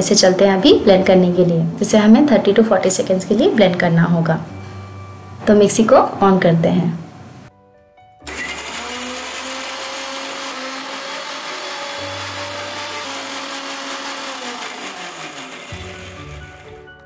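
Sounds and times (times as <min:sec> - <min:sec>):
mixer grinder motor: 0:08.2 - 0:17.0.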